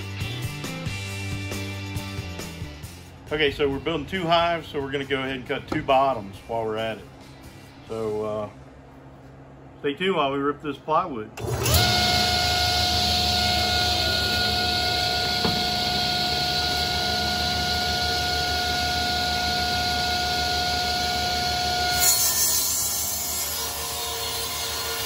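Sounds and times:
table saw whine: 11.4 - 25.0.

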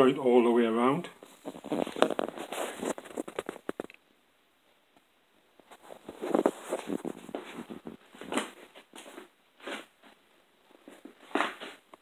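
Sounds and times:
handling rustles and scrapes: 1.2 - 4.0, 5.6 - 12.0
loud scuffs: 10.9 - 12.0.

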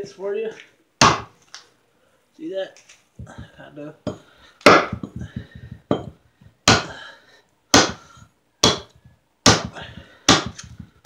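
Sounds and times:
hatchet chopping wood: 1.0 - 1.3, 3.2 - 7.0, 7.7 - 11.0.

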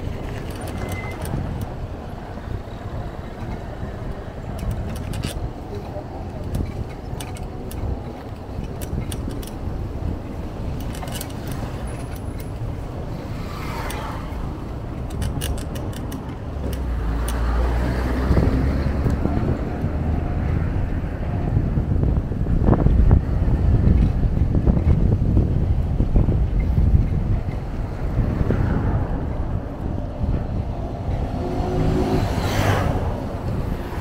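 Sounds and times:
bicycle clicks and rattles: 0.0 - 19.9
wind and road rumble: 0.0 - 34.0
wind buffeting microphone: 0.0 - 34.0.

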